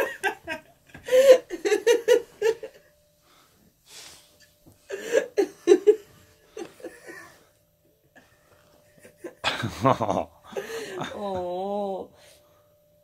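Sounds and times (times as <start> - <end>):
person laughing: 9.0 - 11.6.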